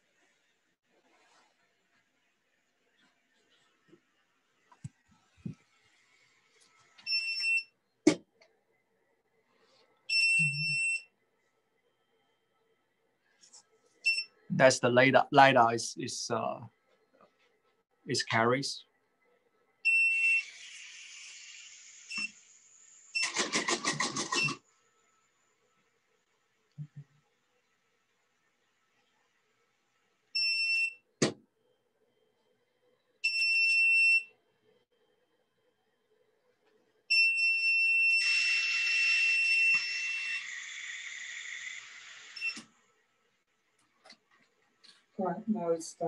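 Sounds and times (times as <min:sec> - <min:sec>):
electronic beeps: 0:10.1 - 0:11.0.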